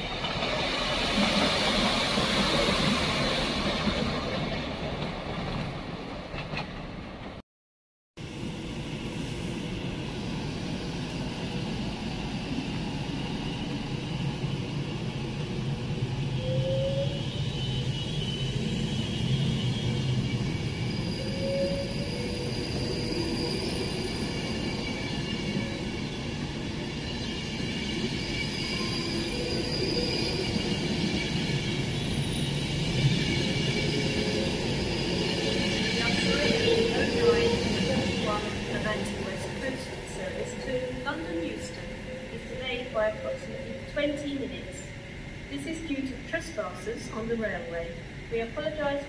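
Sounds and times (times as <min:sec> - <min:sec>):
train wheels rumbling on rail: 0:00.0 - 0:07.4, 0:17.0 - 0:41.8
faint high wheel squeal: 0:16.4 - 0:39.0.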